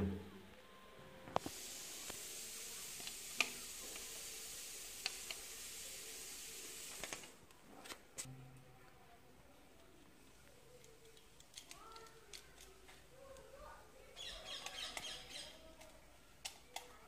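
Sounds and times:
steady hiss: 0.0 - 8.3.

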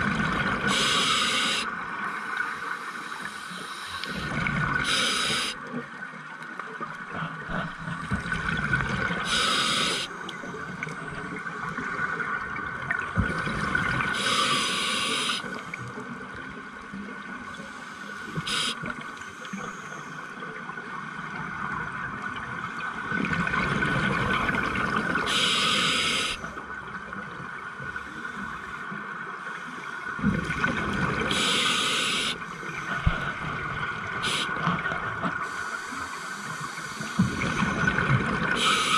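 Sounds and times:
bubbling and gurgling: 0.0 - 0.9, 4.0 - 19.7, 20.3 - 29.3, 30.0 - 35.6, 36.4 - 38.9
hissing regulator breaths: 0.7 - 5.6, 9.3 - 10.2, 14.2 - 15.5, 17.7 - 20.2, 25.3 - 26.4, 31.3 - 33.0, 35.4 - 37.8, 38.6 - 38.9.

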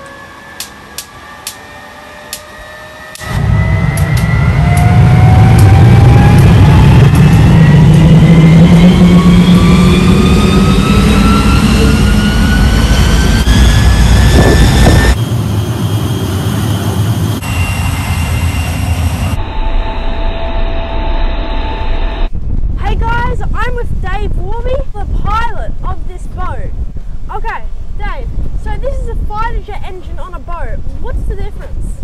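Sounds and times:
turbojet engine whine and roar: 0.0 - 22.7.

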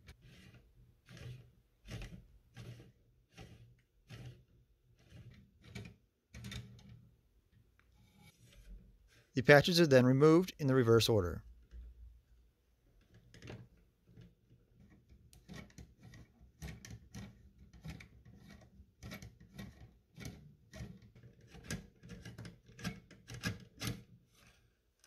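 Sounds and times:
metal rod scraping and clicking: 0.0 - 7.0.

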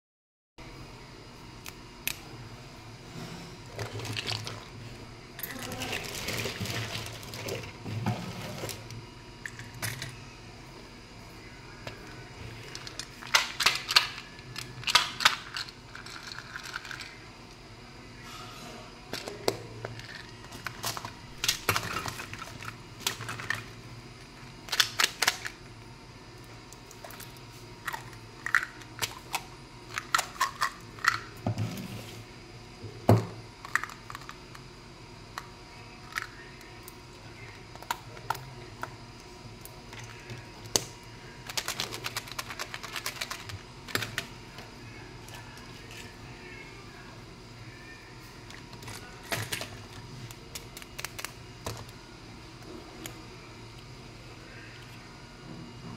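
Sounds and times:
candy containers clicking and tapping: 36.1 - 39.0, 39.9 - 44.3, 48.5 - 52.0.

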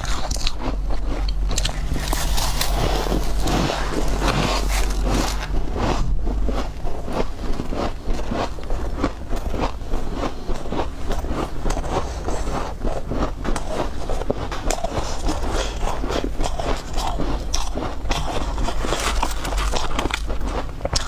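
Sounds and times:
ice crunching while chewed: 0.0 - 21.0
metal spoon scraping ice: 1.6 - 5.5.

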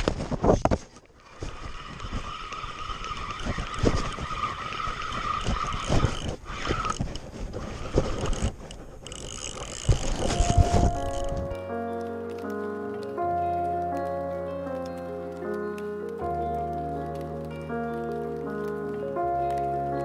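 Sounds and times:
camera rubbing against clothing: 0.0 - 11.6
fishing reel drag whining: 1.2 - 11.6.

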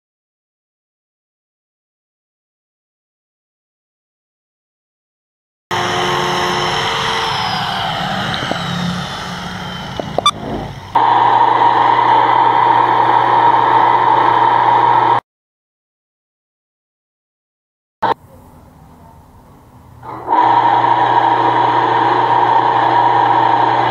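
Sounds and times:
angle grinder winding down: 5.7 - 15.2, 20.0 - 23.9
drill press drilling plastic: 5.7 - 15.2, 20.0 - 23.9.

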